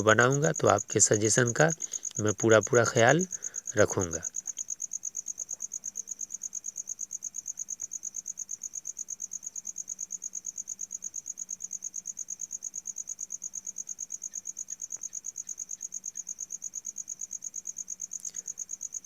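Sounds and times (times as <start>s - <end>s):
insect chirping rapidly: 0.0s - 19.0s.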